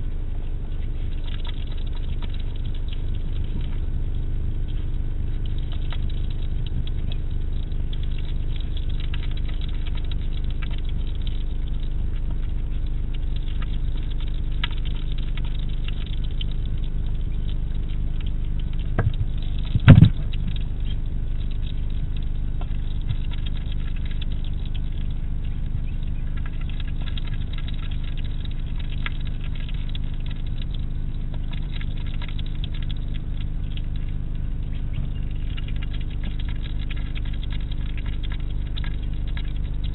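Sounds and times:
steady hum: 0:00.0 - 0:39.9
hedgehog chewing: 0:17.8 - 0:34.1, 0:34.7 - 0:39.9.

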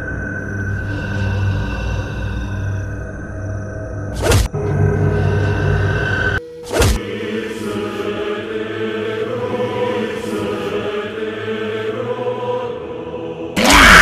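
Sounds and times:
droning held tones: 0:00.0 - 0:13.5
choir-like chanting: 0:04.2 - 0:14.0.

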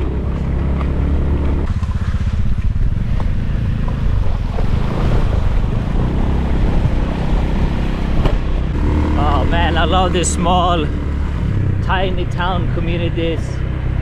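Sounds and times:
motorbike engine running: 0:00.0 - 0:14.0
tyres splashing through stream: 0:01.5 - 0:08.4.

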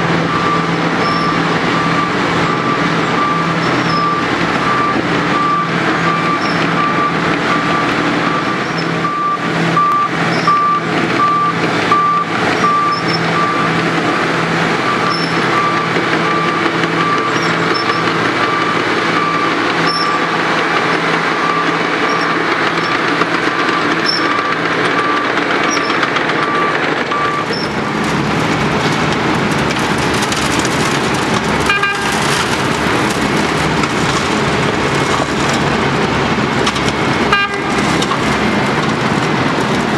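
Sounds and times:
diesel engine under load: 0:00.0 - 0:39.9
warning beeper: 0:00.2 - 0:20.4, 0:23.6 - 0:27.8
asphalt pouring into truck bed: 0:27.6 - 0:39.9.

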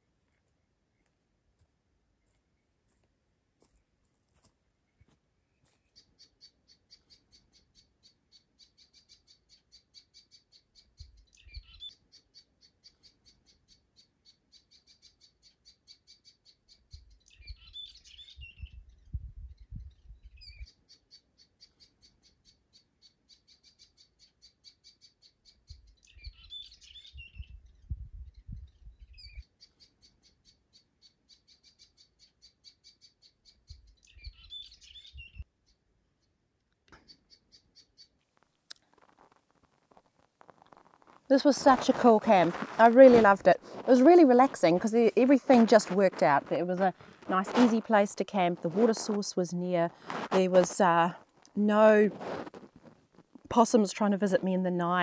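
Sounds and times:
scattered bird chirps: 0:05.5 - 0:38.2
bird trilling: 0:06.0 - 0:19.0, 0:20.3 - 0:27.8, 0:29.0 - 0:35.4.

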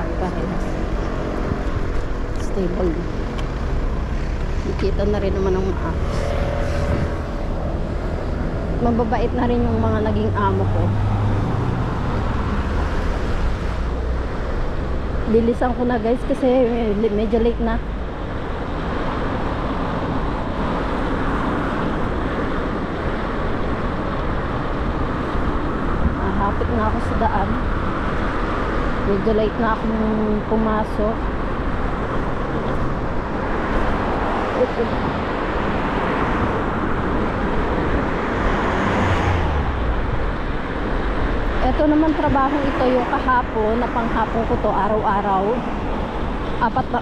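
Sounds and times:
wind on microphone: 0:00.0 - 0:15.2
road traffic: 0:00.0 - 0:47.0
vehicle passing by: 0:00.0 - 0:47.0
wind and road rushing noise: 0:00.0 - 0:47.0.

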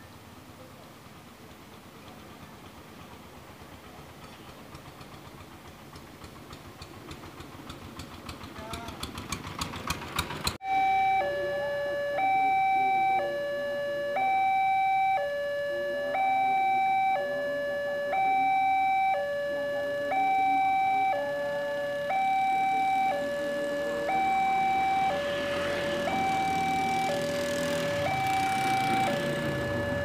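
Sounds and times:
road traffic noise: 0:00.0 - 0:30.0
two-tone crossing alarm: 0:10.6 - 0:30.0.

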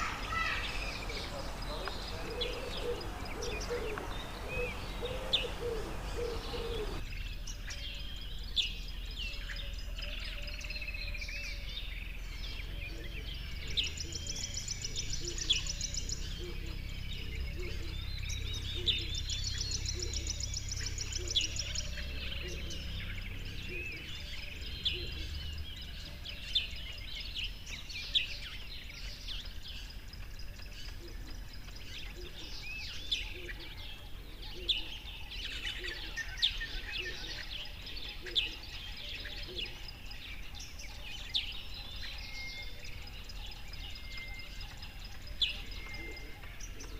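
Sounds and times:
steady background hiss: 0:00.0 - 0:07.0
birds chirping: 0:00.0 - 0:46.9.

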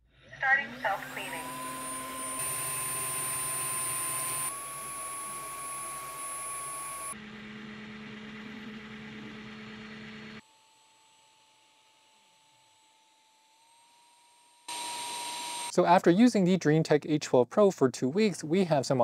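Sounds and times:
fan whir with high whine: 0:00.4 - 0:10.4.

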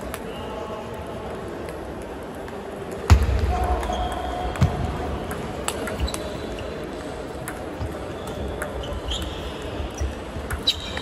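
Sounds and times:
table tennis balls clicking: 0:07.3 - 0:09.4, 0:10.0 - 0:11.0.

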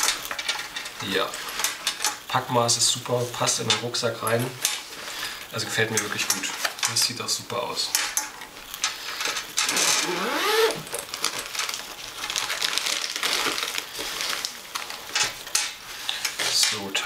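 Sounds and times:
plastic wrapping crinkling: 0:00.0 - 0:17.0
zipper being pulled open: 0:09.7 - 0:10.9.

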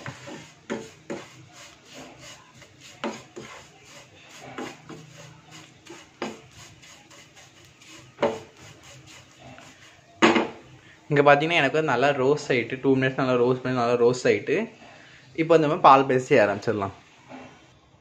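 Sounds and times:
wooden spatula scraping a pan: 0:00.0 - 0:10.2, 0:16.4 - 0:17.7.

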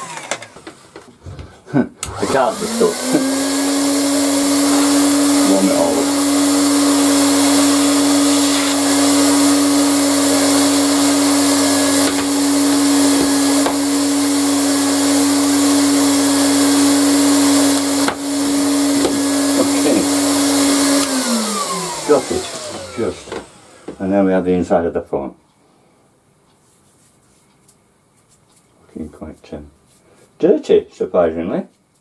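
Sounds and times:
heat gun fan humming: 0:00.0 - 0:00.8, 0:02.0 - 0:24.2.

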